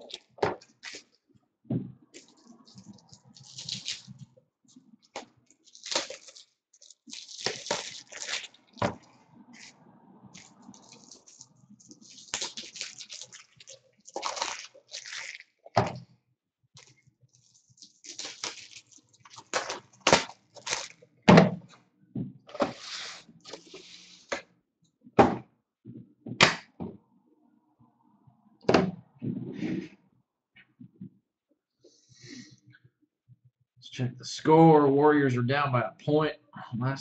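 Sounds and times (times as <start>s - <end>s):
plastic crinkling: 2.2s - 15.8s, 16.8s - 21.0s.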